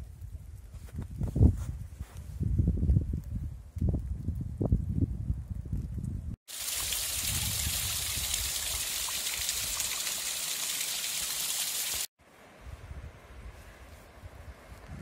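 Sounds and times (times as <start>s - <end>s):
wind buffeting microphone: 0.0s - 6.4s, 7.1s - 8.8s, 12.6s - 15.0s
stream trickling over rocks: 6.5s - 12.1s.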